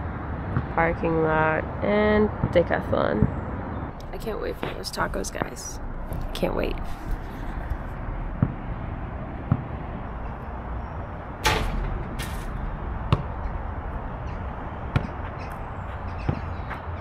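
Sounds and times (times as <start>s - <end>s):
steady low rumble: 0.0s - 17.0s
basketball bouncing: 8.3s - 8.7s, 9.4s - 9.8s, 11.5s - 13.6s, 14.8s - 16.8s.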